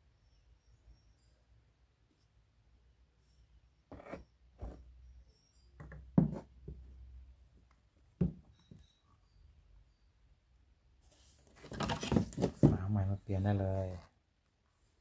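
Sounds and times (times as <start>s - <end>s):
hard plastic knocking and clattering: 8.2s - 8.8s, 11.7s - 12.9s.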